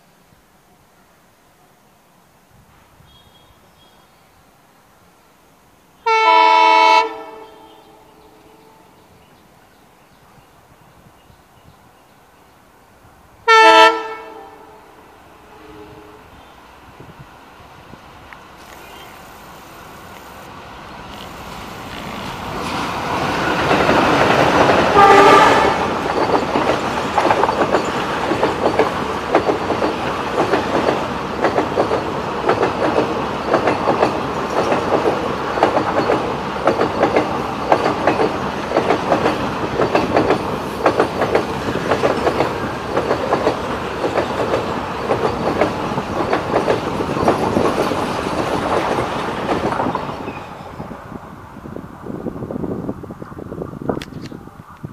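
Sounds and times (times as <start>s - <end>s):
train horn blast: 6.0s - 9.1s, 13.4s - 16.5s, 24.9s - 26.0s
train wheels clattering over rail joints: 21.1s - 50.6s.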